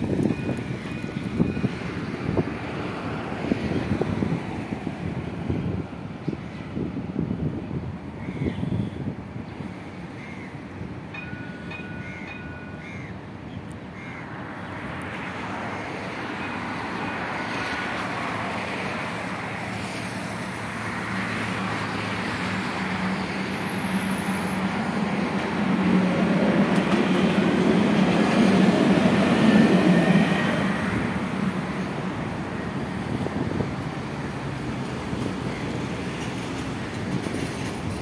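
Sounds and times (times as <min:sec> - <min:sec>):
tram running on tracks: 0:00.0 - 0:38.0.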